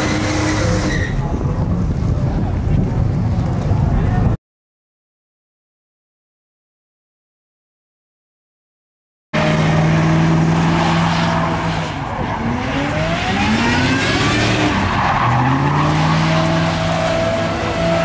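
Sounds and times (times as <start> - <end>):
truck engine revving high: 0.0 - 1.3, 9.4 - 18.0
tyres spinning and squealing: 0.0 - 1.6, 9.5 - 18.0.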